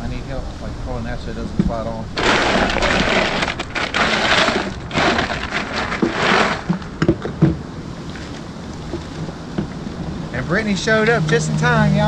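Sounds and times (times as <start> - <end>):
hands crunching through ice: 2.2 - 7.0.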